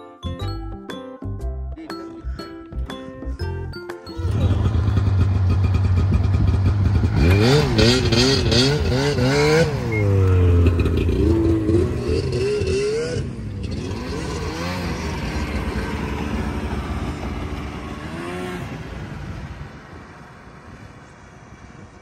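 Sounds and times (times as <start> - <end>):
snowmobile engines revving: 4.2 - 20.9.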